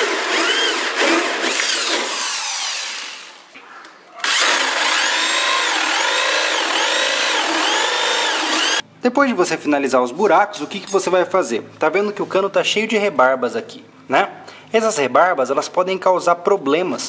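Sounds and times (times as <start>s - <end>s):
electric drill hole saw whining: 0.0s - 3.4s, 4.2s - 8.8s.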